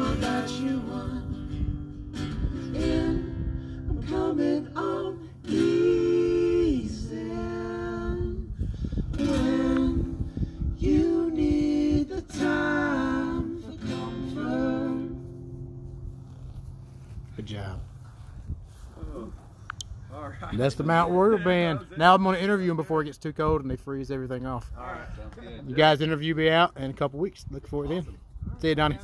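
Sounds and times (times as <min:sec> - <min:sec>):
acoustic guitar strumming: 0:00.0 - 0:08.3, 0:09.1 - 0:16.4
voices singing in harmony: 0:00.0 - 0:15.6.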